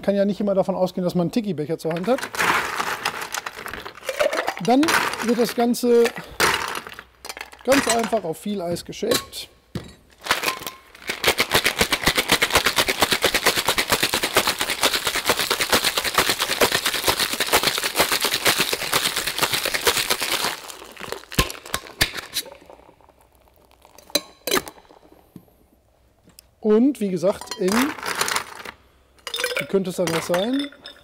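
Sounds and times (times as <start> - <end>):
ice rattling in cocktail shaker: 1.9 - 8.2, 10.2 - 25.0, 27.5 - 31.0.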